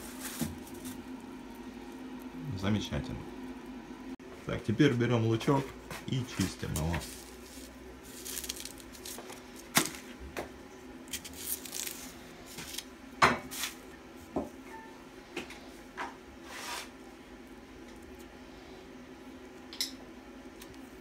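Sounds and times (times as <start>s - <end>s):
onion skin crackling and rustling: 0.0s - 3.1s, 5.5s - 13.9s.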